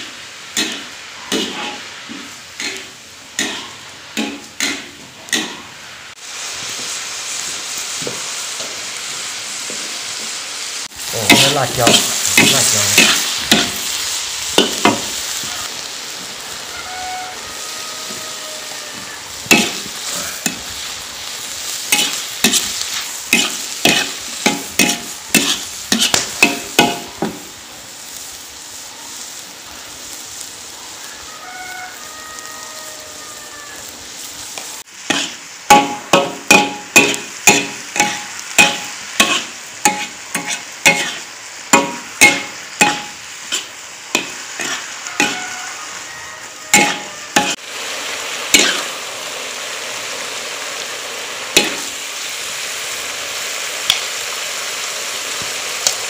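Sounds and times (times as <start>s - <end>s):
spatula scraping and striking wok: 0.0s - 6.0s, 11.0s - 27.5s, 34.5s - 47.7s, 48.5s - 48.9s, 51.6s - 52.0s
meat and peppers sizzling in wok: 0.0s - 56.0s.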